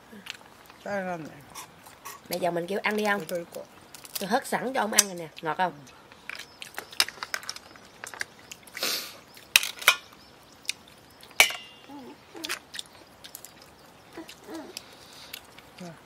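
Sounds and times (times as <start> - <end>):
shells and utensils knocking on pot: 11.4 - 11.8
sharp metallic clink: 11.4 - 11.9.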